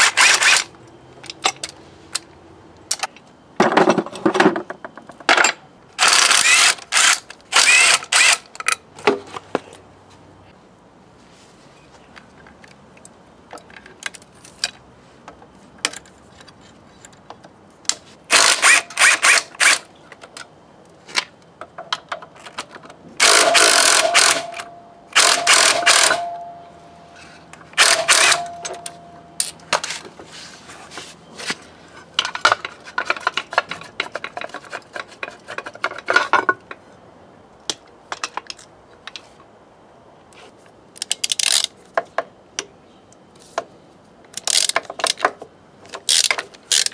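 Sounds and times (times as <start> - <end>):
cordless drill motor whine: 6.0 - 8.4
metal tools clattering: 23.4 - 30.0.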